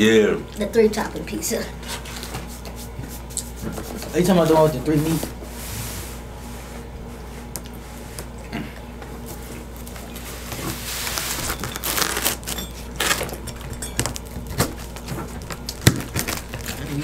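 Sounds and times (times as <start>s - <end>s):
pizza cutter crunching crust: 14.4s - 17.0s.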